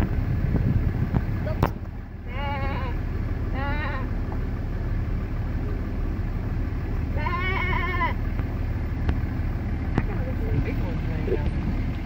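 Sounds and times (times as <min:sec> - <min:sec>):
vehicle engine rumble: 0:00.0 - 0:12.0
goat bleating: 0:02.2 - 0:04.2, 0:07.0 - 0:08.3.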